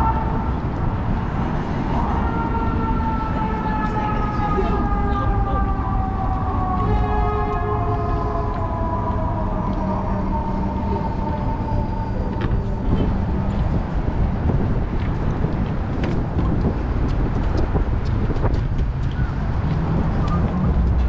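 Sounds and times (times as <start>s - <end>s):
city traffic rumble: 0.0s - 21.0s
emergency siren sliding down: 2.0s - 14.1s.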